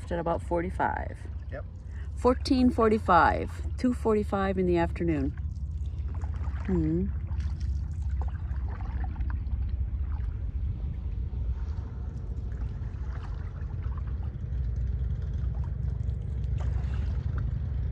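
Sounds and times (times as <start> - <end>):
steady low rumble: 0.0 - 17.9
paddle splashes and drips: 4.8 - 17.9.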